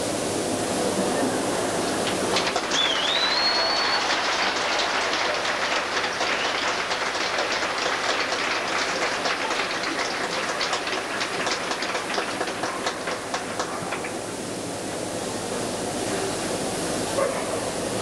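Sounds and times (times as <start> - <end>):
audience applauding: 1.8 - 14.4.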